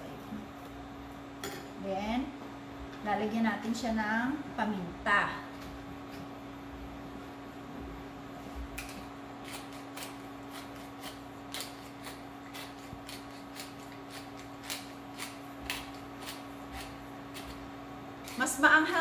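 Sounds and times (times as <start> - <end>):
pepper mill grinding: 8.8 - 19.0.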